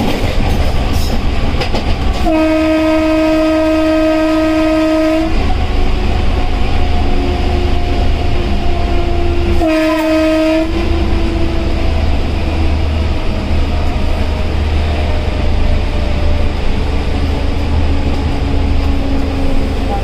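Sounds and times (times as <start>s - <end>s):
locomotive cab rumble: 0.0s - 20.0s
train horn blast: 2.2s - 5.5s, 9.5s - 11.4s.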